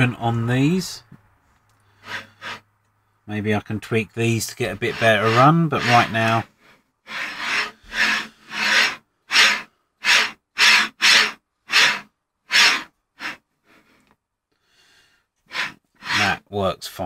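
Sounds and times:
carriage sliding on steel rods: 0:02.0 - 0:02.6, 0:04.6 - 0:06.5, 0:07.1 - 0:13.4, 0:15.5 - 0:16.3.

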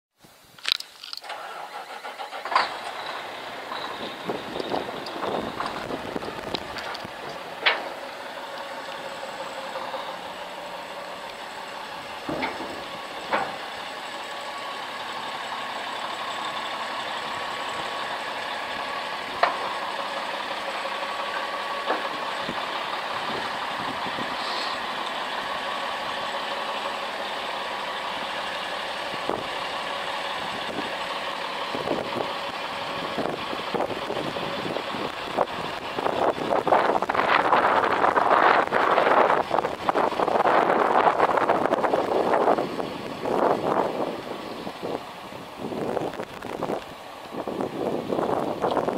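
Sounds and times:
sharp clicks: 0:00.6 - 0:01.4
diesel engine idling: 0:01.2 - 0:48.9.

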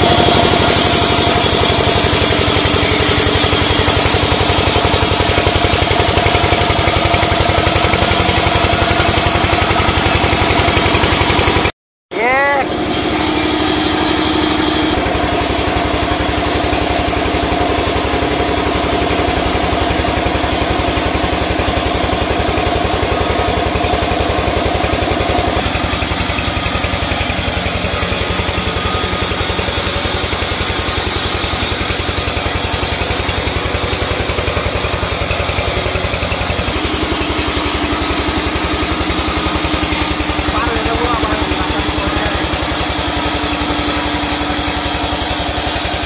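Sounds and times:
sawmill saw cutting timber: 0:00.0 - 0:46.0.

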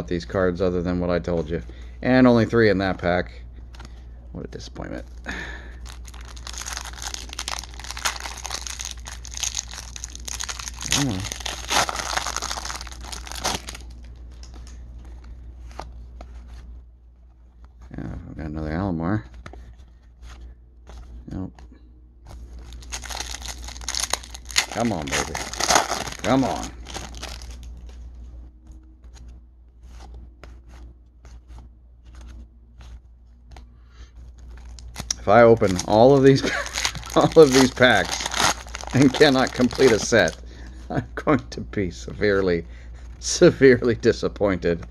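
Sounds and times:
faint low hum: 0:00.0 - 0:44.9
foil wrapper crinkling and tearing: 0:05.3 - 0:14.6, 0:22.6 - 0:27.7, 0:34.3 - 0:40.4
cards rustling and flicking: 0:05.9 - 0:18.0, 0:22.2 - 0:40.4.

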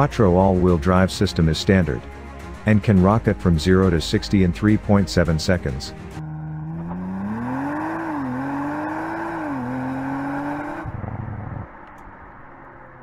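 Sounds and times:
car engine accelerating hard: 0:06.1 - 0:13.0.

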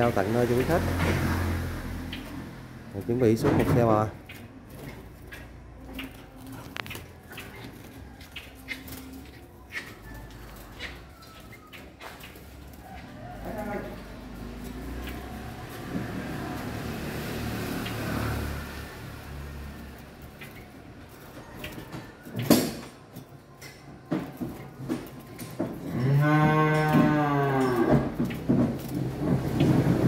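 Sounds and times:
cow mooing: 0:25.9 - 0:28.2.

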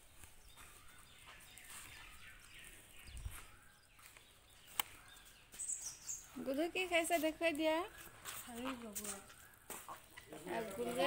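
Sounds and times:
faint bird chirps: 0:00.0 - 0:11.0.

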